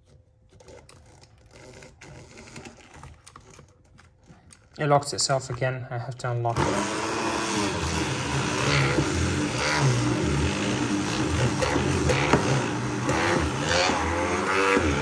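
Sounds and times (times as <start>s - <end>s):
hand blender motor under load: 6.5s - 15.0s.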